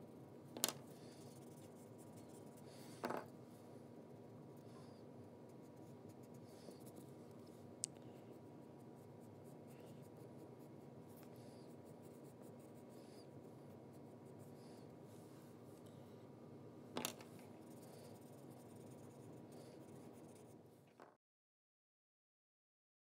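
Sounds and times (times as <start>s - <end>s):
low room hum: 0.0s - 21.2s
pencil scratching on paper: 0.8s - 3.0s, 4.8s - 7.2s, 8.4s - 14.9s, 17.6s - 20.6s.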